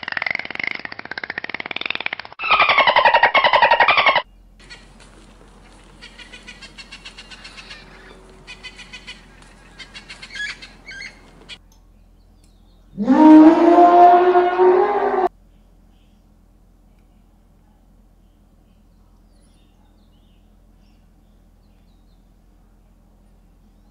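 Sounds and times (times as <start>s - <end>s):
quick ticking: 0.0s - 7.6s
drawn-out rising animal call: 0.0s - 11.6s, 13.0s - 15.3s
sea lion calling: 2.4s - 5.0s, 5.8s - 11.6s.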